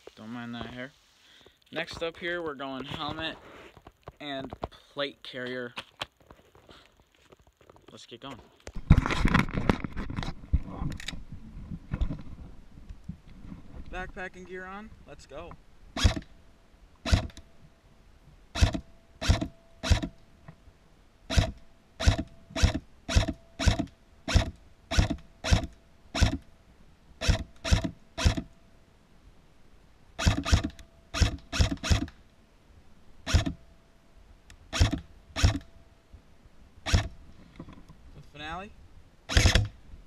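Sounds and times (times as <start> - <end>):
airsoft rifle firing single shots: 17.0 - 17.4, 30.2 - 32.1, 39.3 - 39.8.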